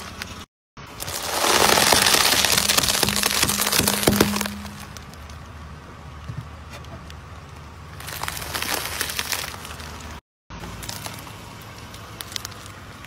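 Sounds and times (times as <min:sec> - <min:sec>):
brittle objects crushed under tyre: 0:00.9 - 0:05.4, 0:08.0 - 0:10.2
low steady hum: 0:02.0 - 0:06.3.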